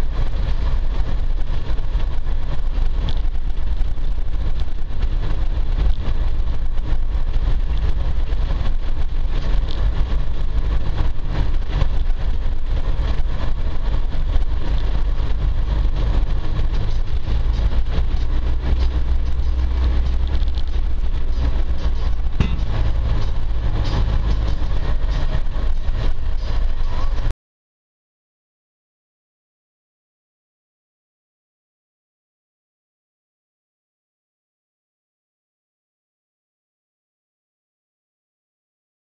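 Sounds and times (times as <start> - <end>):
vehicle engine rumble: 0.0 - 27.3.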